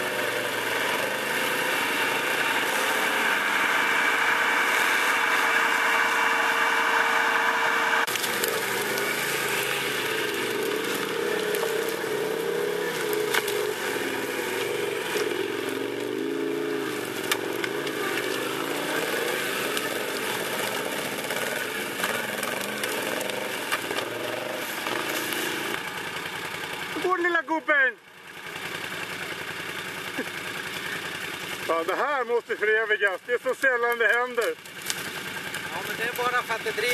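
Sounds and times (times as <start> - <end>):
atv engine revving: 0.0 - 36.9
sharp cracks: 8.0 - 27.2, 33.0 - 36.9.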